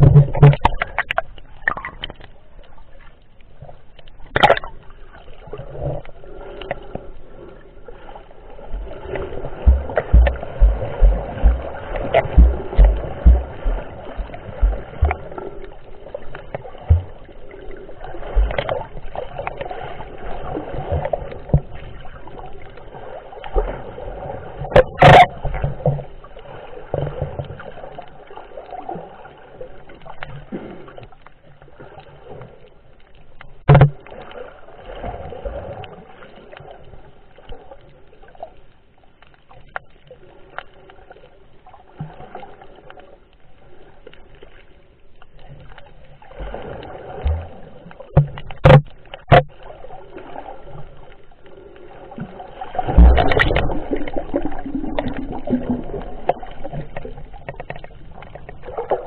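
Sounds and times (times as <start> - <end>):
muffled underwater water noise: 0.0 - 59.0
rush of water: 4.2 - 31.1, 45.4 - 59.0
sharp knocks: 9.7 - 15.2.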